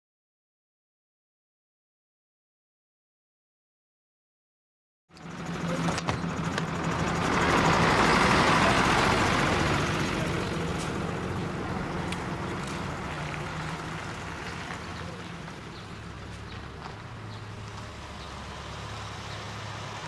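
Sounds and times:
bus engine humming: 5.1s - 20.0s.

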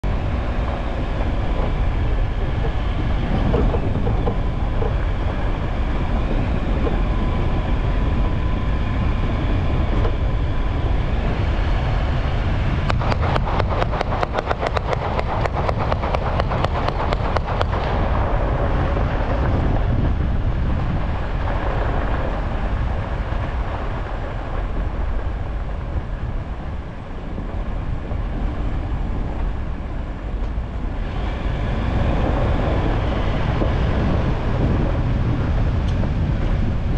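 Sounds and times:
off-road vehicle engine: 0.0s - 36.9s
fast ticking clatter: 12.8s - 19.7s.

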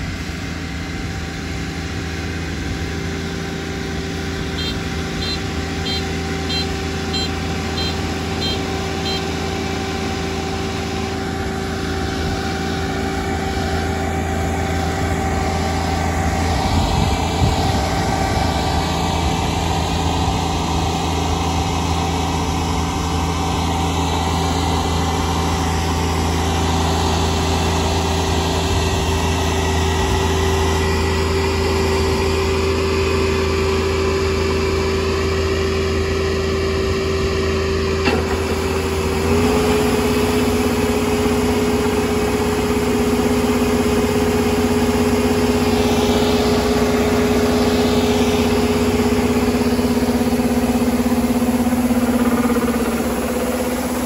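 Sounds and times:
combine harvester engine running: 0.0s - 54.0s
faint short beeps: 4.6s - 9.4s.

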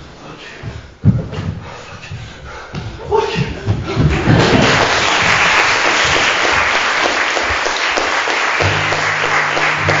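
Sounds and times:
audience applauding: 4.1s - 10.0s
low held note: 8.6s - 10.0s
music playing: 8.6s - 10.0s.

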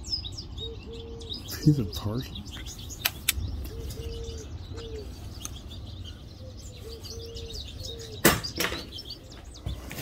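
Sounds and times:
small birds chirping: 0.0s - 10.0s
dove cooing: 0.5s - 2.4s, 3.5s - 10.0s
loud sharp knocks: 8.2s - 8.9s.

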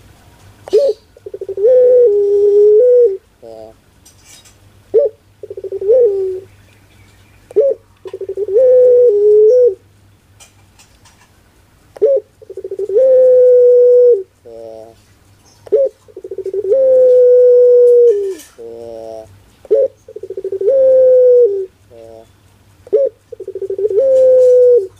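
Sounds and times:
dove cooing: 0.7s - 3.8s, 4.9s - 6.5s, 7.5s - 9.8s, 12.0s - 15.0s, 15.6s - 24.9s.

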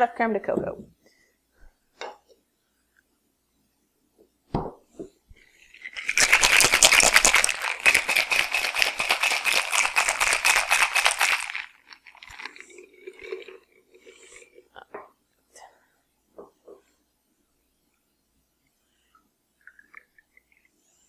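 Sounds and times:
cocktail shaker rattling: 5.6s - 12.7s.

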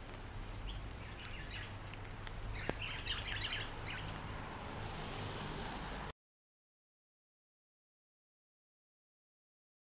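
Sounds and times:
small bird chirping: 0.6s - 1.8s, 2.5s - 4.2s
light rain hiss: 4.0s - 6.1s.

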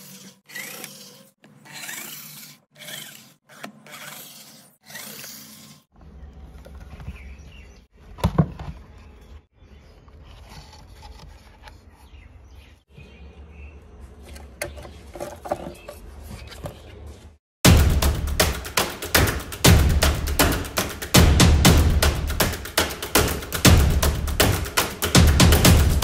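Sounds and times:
handling noise of parts: 14.1s - 17.4s.

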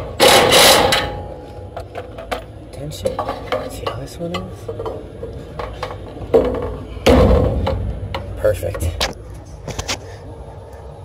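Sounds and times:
metal parts clinking and scraping: 0.0s - 7.0s.

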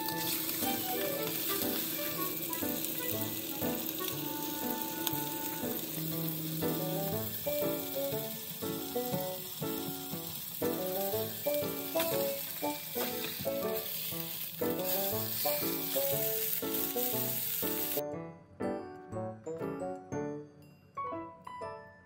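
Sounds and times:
meat sizzling in a frying pan: 0.0s - 18.0s
light melodic background music: 0.0s - 22.0s.

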